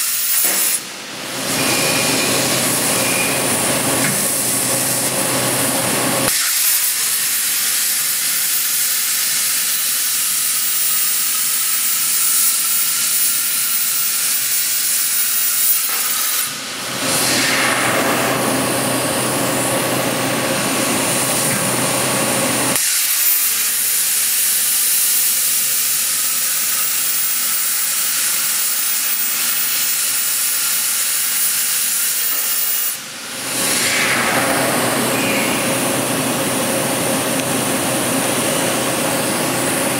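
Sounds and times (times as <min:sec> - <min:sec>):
plasma torch hissing: 0:00.0 - 0:05.1, 0:06.3 - 0:18.8, 0:22.7 - 0:36.7.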